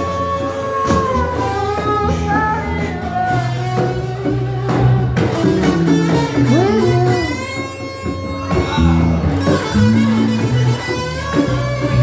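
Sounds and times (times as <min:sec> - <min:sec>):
live rock band with singing: 0:00.0 - 0:12.0.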